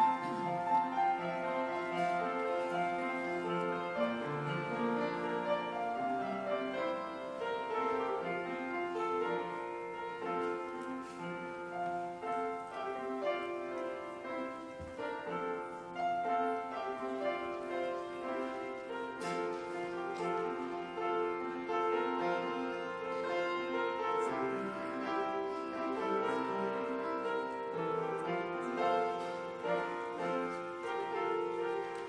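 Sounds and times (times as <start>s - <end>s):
solo piano: 0.0s - 32.0s.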